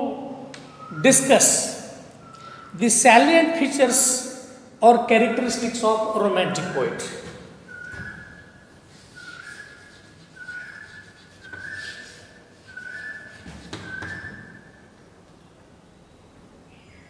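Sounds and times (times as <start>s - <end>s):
faint chalk scratching: 8.8s - 14.6s
chalk squeaking on blackboard: 8.9s - 14.6s.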